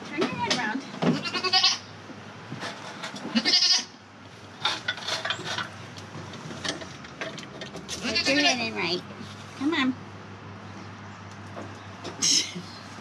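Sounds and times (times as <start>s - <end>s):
goat bleating: 1.1s - 1.8s, 3.3s - 4.0s, 8.0s - 8.7s.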